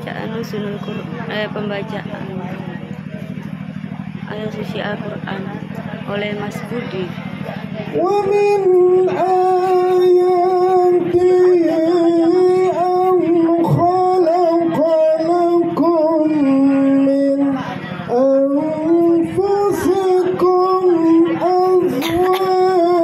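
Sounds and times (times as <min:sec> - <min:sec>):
man chanting recitation: 0:07.6 - 0:23.0.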